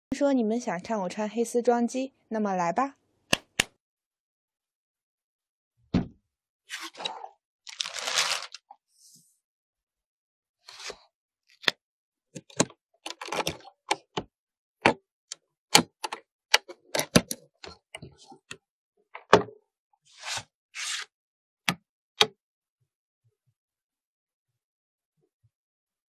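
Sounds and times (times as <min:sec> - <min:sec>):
cardboard packaging rustling: 0:07.7 - 0:08.6.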